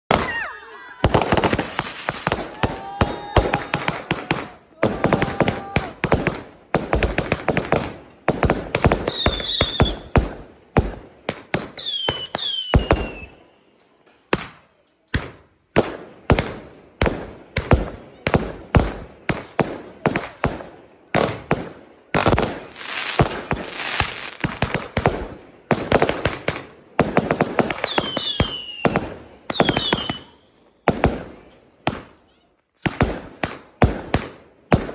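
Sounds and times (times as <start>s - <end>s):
firework bangs and crackling pops: 0.1s - 13.4s, 14.1s - 34.9s
falling firework whistles: 9.1s - 10.1s, 11.8s - 13.4s, 27.8s - 30.4s.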